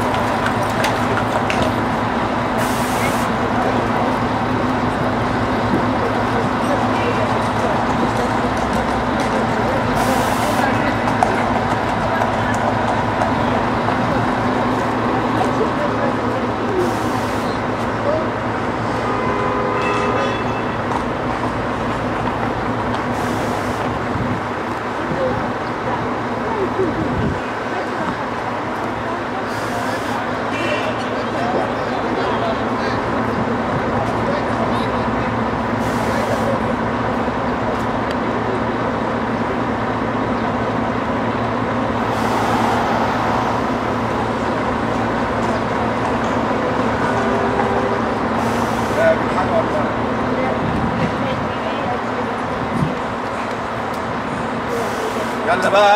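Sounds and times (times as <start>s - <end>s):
diesel bus engine running: 0.0s - 19.7s, 20.7s - 55.9s
street noise: 0.0s - 55.9s
high whine: 41.3s - 46.3s.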